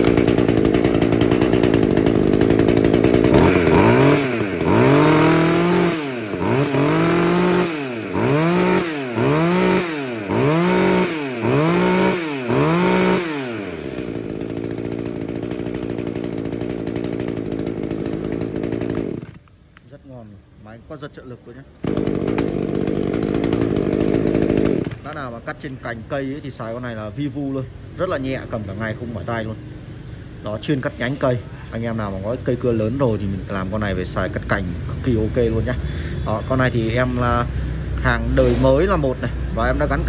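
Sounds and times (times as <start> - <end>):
chainsaw revving and idling: 0.0 - 19.5, 21.8 - 25.9, 31.9 - 40.0.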